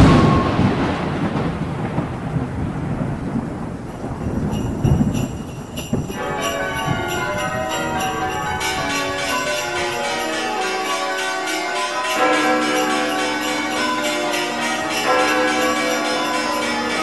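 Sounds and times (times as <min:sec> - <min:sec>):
thunder crack and rumble: 0:00.0 - 0:09.9
bells ringing: 0:04.2 - 0:17.0.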